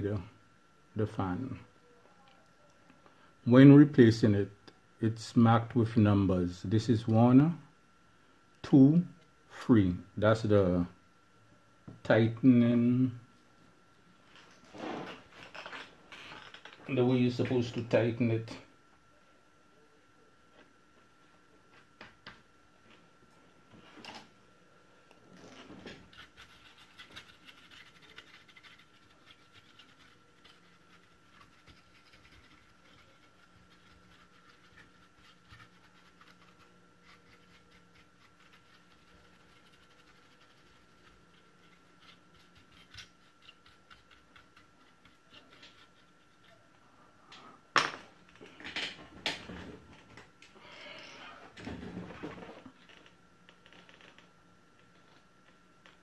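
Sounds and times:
hands scratching on circuit board: 26.0s - 46.6s.

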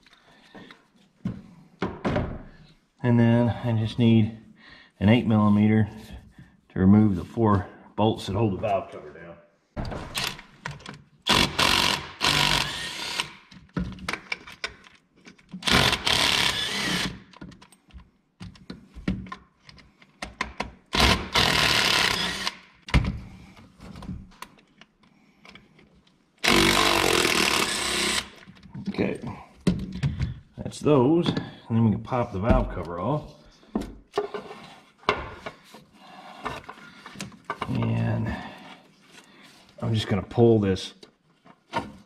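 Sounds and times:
cordless power tool spinning bolts: 11.3s - 13.5s, 15.6s - 17.2s, 20.9s - 22.6s, 26.4s - 28.4s.

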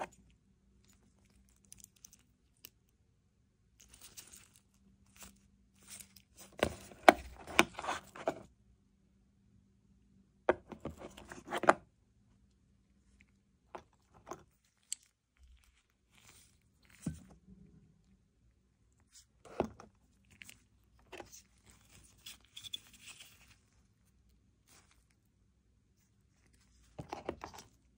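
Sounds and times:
handling cardboard boxes: 5.9s - 8.5s.

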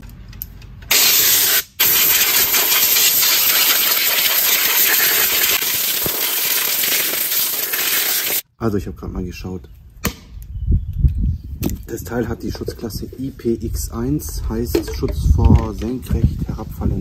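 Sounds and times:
water spraying hiss: 0.9s - 8.4s.

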